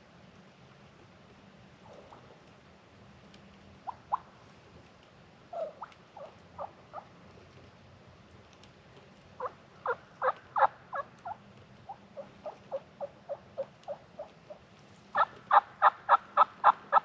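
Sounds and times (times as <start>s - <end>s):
turkey yelping: 5.6s - 7.1s, 9.4s - 14.3s, 15.2s - 17.0s.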